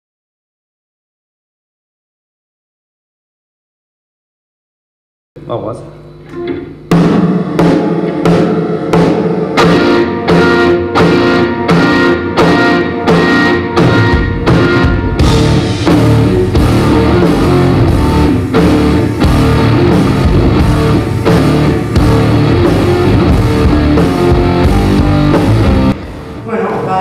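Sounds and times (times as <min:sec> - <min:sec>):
electric guitar: 0:06.1 - 0:27.0
drum kit: 0:06.2 - 0:26.4.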